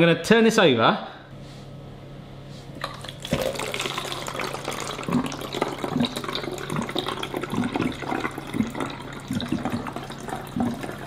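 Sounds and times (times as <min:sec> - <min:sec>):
air bubbling: 0:02.7 - 0:11.0
water glugging from bottle: 0:02.8 - 0:11.0.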